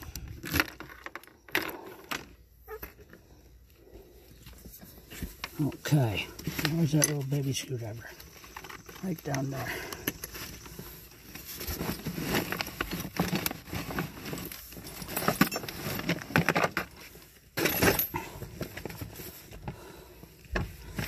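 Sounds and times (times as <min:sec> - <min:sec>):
metal tools clinking: 0:06.5 - 0:10.6, 0:14.2 - 0:16.6, 0:17.6 - 0:18.6.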